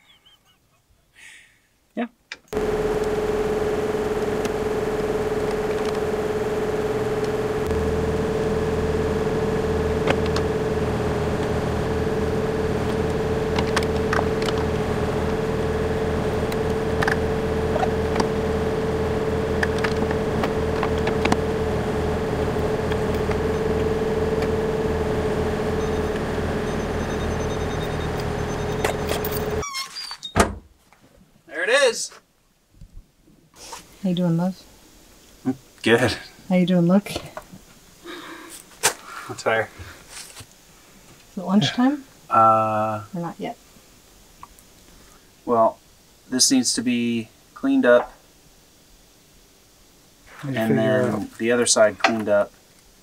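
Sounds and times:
hydraulic whine: 2.5s - 30.5s
skid-steer engine running: 2.6s - 29.6s.

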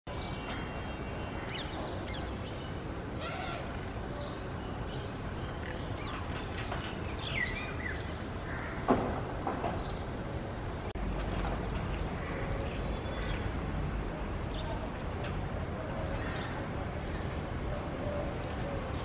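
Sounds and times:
birds chirping: 0.1s - 13.8s.

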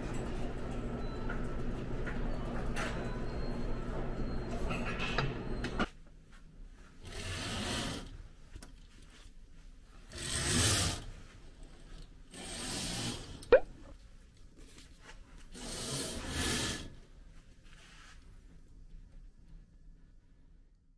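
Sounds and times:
curtain sliding along track: 7.0s - 8.2s, 10.0s - 13.4s, 15.4s - 17.0s.

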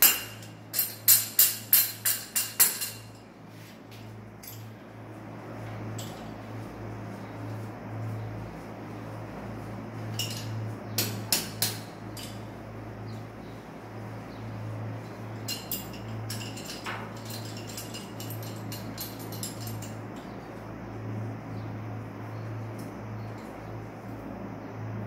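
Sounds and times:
metal wrench clicks and clinks: 0.0s - 3.2s, 15.4s - 20.0s
steady low hum: 0.0s - 25.0s.

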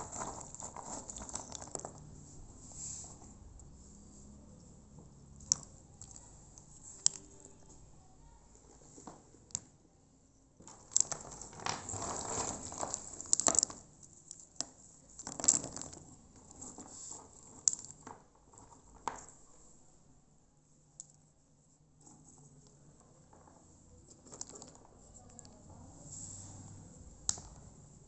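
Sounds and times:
nuts rustling and crunching: 0.0s - 2.5s, 5.2s - 7.9s, 10.6s - 19.4s, 23.3s - 25.8s.

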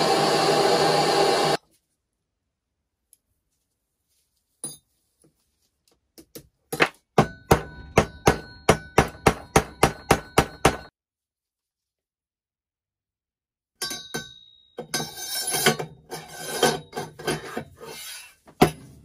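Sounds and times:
hammer striking metal: 6.8s - 10.9s, 13.8s - 16.0s.

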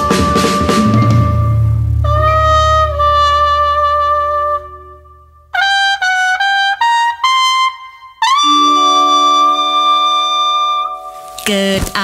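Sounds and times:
low held instrument notes: 0.0s - 7.4s
trumpet playing: 0.0s - 11.5s.

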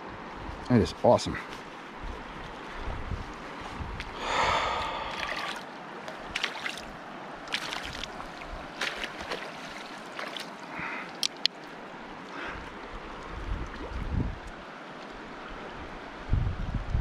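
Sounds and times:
river water running: 0.0s - 16.4s
net splashing in water: 4.9s - 6.9s, 7.5s - 10.6s.

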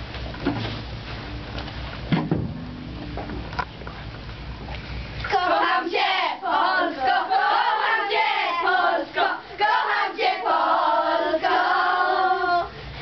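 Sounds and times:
girls singing together: 5.2s - 12.9s.

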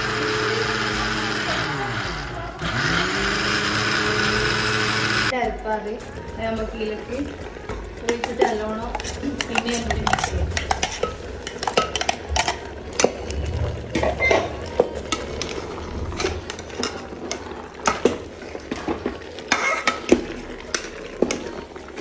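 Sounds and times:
metal spoon scraping jar: 8.1s - 13.2s.

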